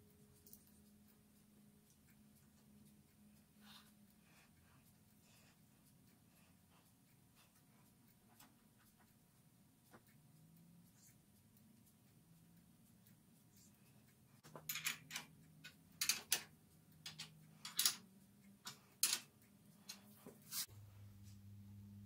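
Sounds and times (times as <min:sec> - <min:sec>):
low hum: 0:20.7 - 0:22.0.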